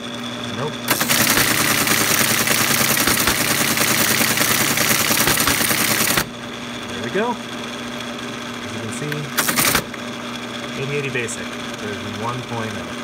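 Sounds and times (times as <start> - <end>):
teletype motor humming: 0.5 - 13.0
teletype printing clatter: 0.9 - 6.3, 9.4 - 9.9.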